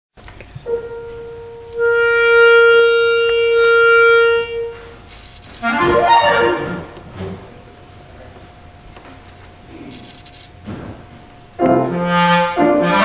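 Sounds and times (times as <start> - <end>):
clarinet long note: 0.7 - 5.0, 5.6 - 7.0, 11.6 - 13.0
quick clarinet notes: 0.7 - 5.0, 5.6 - 7.0, 11.6 - 13.0.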